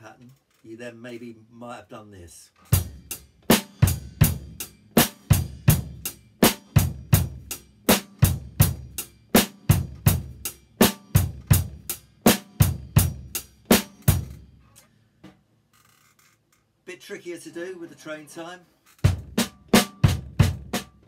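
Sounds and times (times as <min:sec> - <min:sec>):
kick drum pattern: 0:09.7 - 0:11.9, 0:19.1 - 0:21.0.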